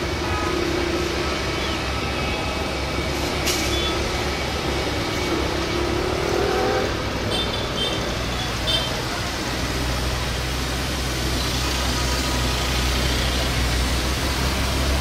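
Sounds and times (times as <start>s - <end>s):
jet engines rumbling and whining: 0.0s - 8.3s.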